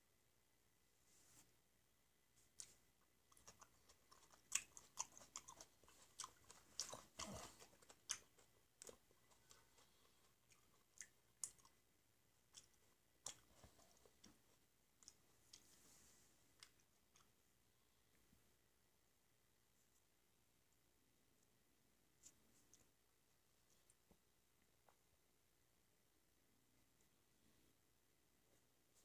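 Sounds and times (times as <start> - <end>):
wet mouth clicks and smacks: 10.5 - 11.8.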